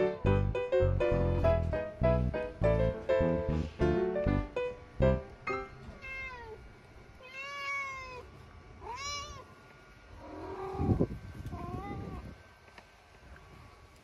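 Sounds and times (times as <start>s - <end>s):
cat meowing: 5.9s - 6.6s, 7.2s - 9.5s, 10.2s - 12.2s.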